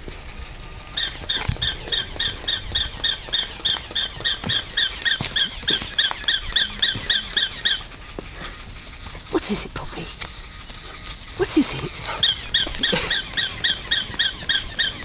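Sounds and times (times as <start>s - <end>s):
toy dog squeaky yaps: 1.0s - 7.9s, 11.4s - 15.0s.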